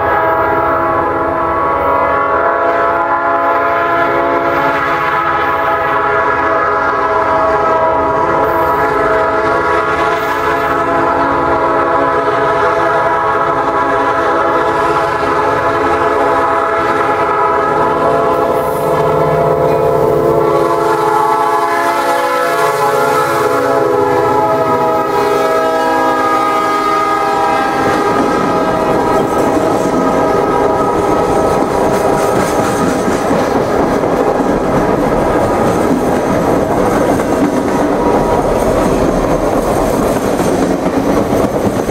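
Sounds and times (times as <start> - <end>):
locomotive air horn blasts: 0.0 - 32.8
train rumble: 0.0 - 41.9.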